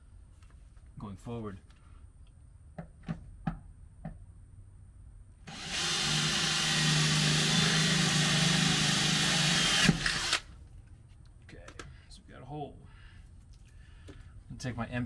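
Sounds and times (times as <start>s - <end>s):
cordless drill boring into metal: 5.5s - 10.5s.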